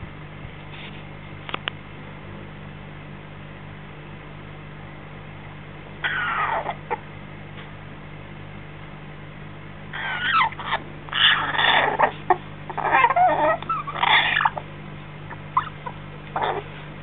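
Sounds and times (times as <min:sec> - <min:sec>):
parrot chick squawking: 0:06.0 - 0:07.0, 0:09.9 - 0:14.7, 0:15.3 - 0:16.7
parrot chirps: 0:06.0 - 0:07.0, 0:10.0 - 0:14.6.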